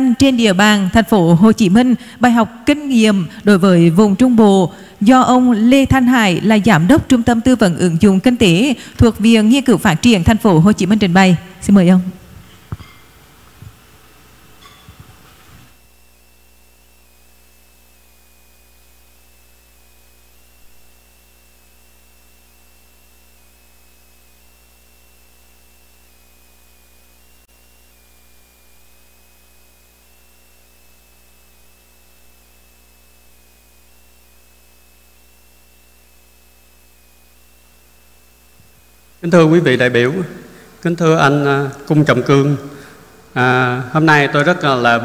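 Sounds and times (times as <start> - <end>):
electrical mains hum and hiss: 0.0 - 45.0
faint high whine: 0.0 - 45.0.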